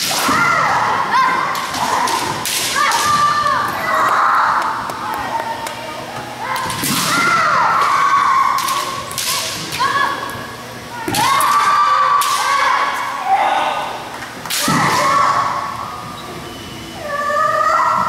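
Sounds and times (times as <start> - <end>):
people shouting: 0.0 - 4.8, 6.4 - 10.2, 11.0 - 15.8.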